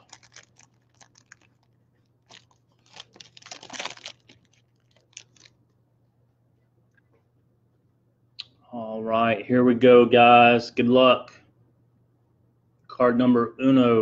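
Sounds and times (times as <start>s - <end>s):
card pack wrapper crinkling: 0.0s - 5.6s.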